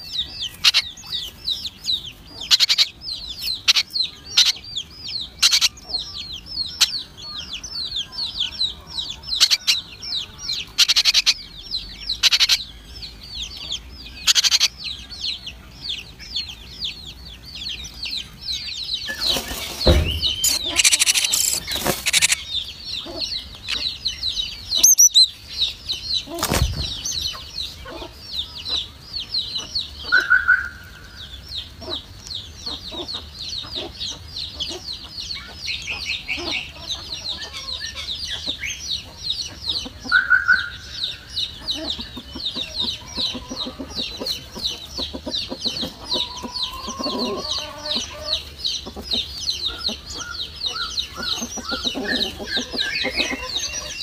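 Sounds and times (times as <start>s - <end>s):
nestlings cheeping: 18.6s - 25.4s
birds rustling in nest: 19.1s - 22.5s, 26.3s - 27.4s.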